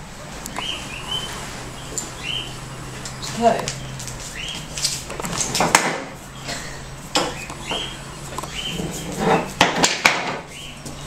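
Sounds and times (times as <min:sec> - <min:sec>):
broom knocking and clattering: 0:04.0 - 0:07.9, 0:08.7 - 0:10.5.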